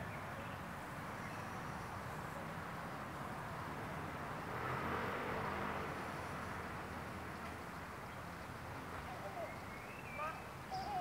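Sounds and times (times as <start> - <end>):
outdoor background rush: 0.0 - 11.0.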